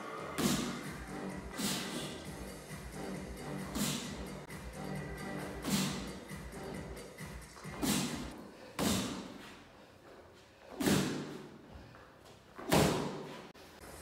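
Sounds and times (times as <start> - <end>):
punches on boxing gloves: 10.8 - 11.5.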